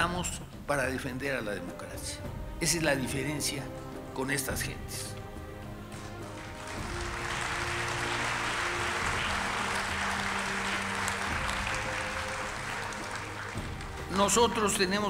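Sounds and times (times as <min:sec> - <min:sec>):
audience applauding: 0:06.0 - 0:14.8.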